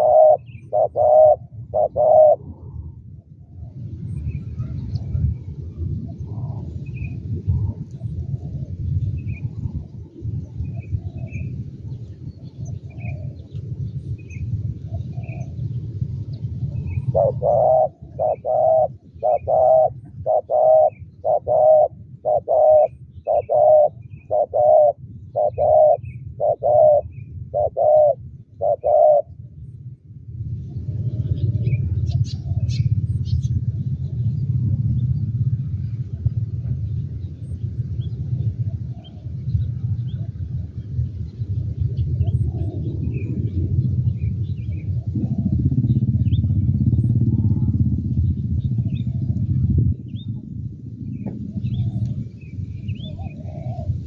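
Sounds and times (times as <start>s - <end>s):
dove cooing: 0.0s - 3.0s, 6.1s - 11.5s, 12.3s - 13.6s, 16.7s - 29.4s, 38.5s - 40.8s, 41.7s - 50.4s, 51.1s - 54.0s
steady low rumble: 0.0s - 54.0s.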